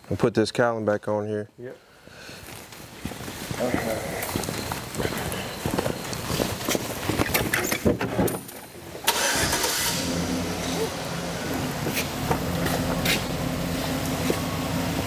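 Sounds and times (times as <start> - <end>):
low mechanical hum: 3.2 - 15.0.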